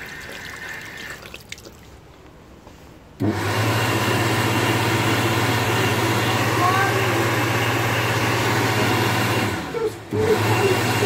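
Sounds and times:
hand dryer blowing air: 0:03.2 - 0:11.0.

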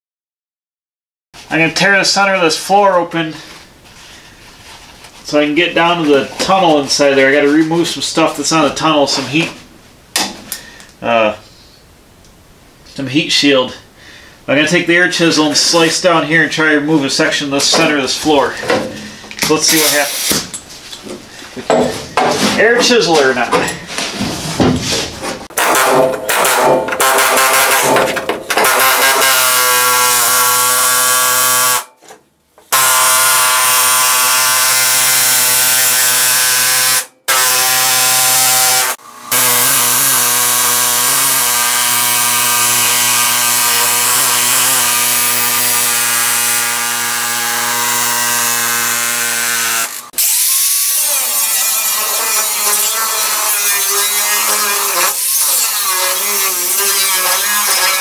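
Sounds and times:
angle grinder cutting steel: 0:19.5 - 0:20.4, 0:25.5 - 0:31.9, 0:32.7 - 0:58.0
air chisel hammering steel: 0:25.5 - 0:31.9.

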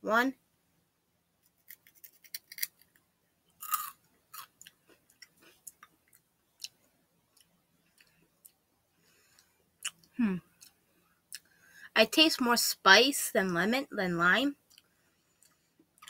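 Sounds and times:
crunchy snack chewing: 0:01.4 - 0:03.0, 0:03.6 - 0:06.8.

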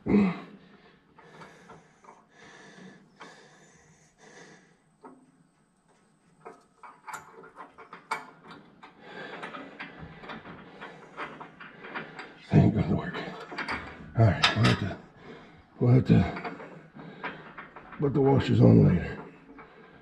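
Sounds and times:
metallic clicks and scraping: 0:05.0 - 0:15.1.

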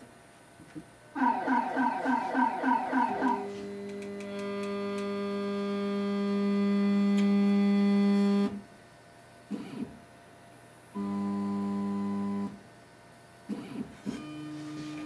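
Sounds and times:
pitched motor hum: 0:03.2 - 0:08.6.

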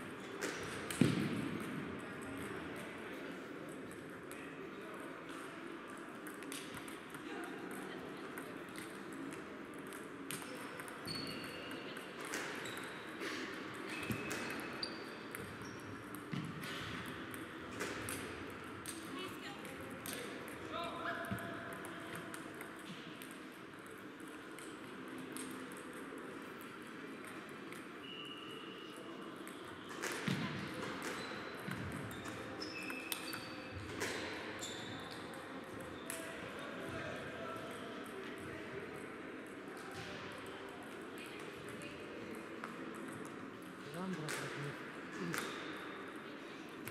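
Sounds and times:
table tennis balls clicking: 0:05.3 - 0:20.6, 0:21.2 - 0:27.9, 0:29.4 - 0:36.3
ping pong ball clicking: 0:06.2 - 0:07.8
shoe squeaks: 0:11.0 - 0:11.7, 0:13.9 - 0:15.9, 0:32.1 - 0:33.7, 0:34.6 - 0:35.1.

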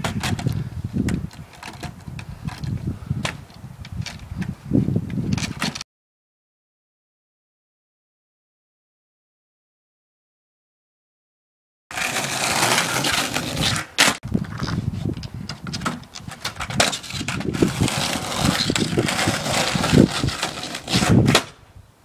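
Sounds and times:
skateboard clacking on ground: 0:00.0 - 0:03.4, 0:11.9 - 0:21.6
skateboard wheels rolling on asphalt: 0:00.0 - 0:05.8, 0:11.9 - 0:21.7.

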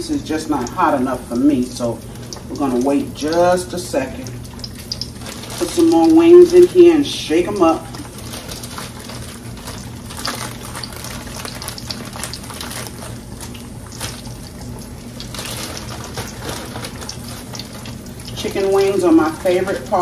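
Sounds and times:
oil sizzling in a pan: 0:00.4 - 0:20.0
plastic bag rustling: 0:05.1 - 0:20.0.

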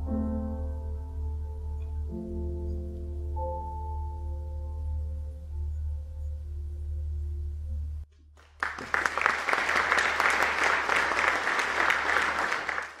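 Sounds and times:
audience applause: 0:08.4 - 0:13.0.

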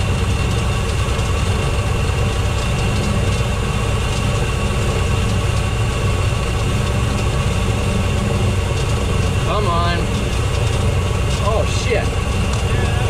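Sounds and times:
piston aircraft engine drone: 0:00.0 - 0:13.0.

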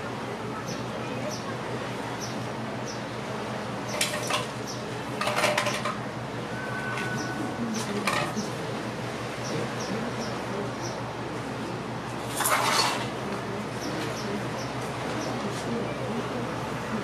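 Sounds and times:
steady low hum: 0:00.0 - 0:17.0
faint high chirps: 0:06.5 - 0:07.6.

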